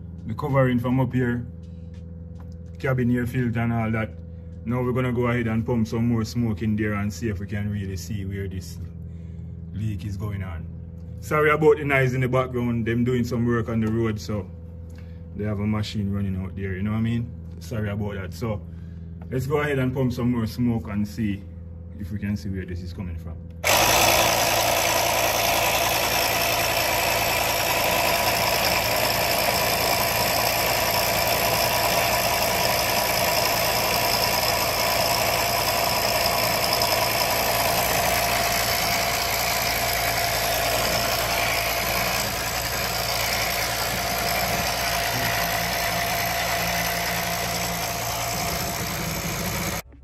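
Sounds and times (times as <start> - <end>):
pump running steadily: 23.6 - 49.8.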